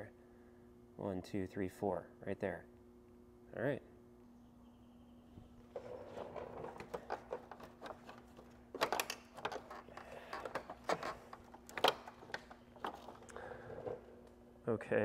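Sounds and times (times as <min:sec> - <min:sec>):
plastic grille clicks and rattles: 0:05.8 - 0:14.0.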